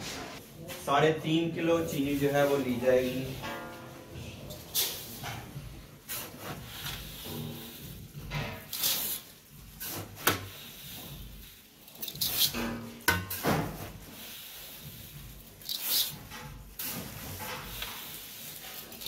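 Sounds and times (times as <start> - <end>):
metal cookware clattering: 3.2 - 5.6, 11.9 - 13.9.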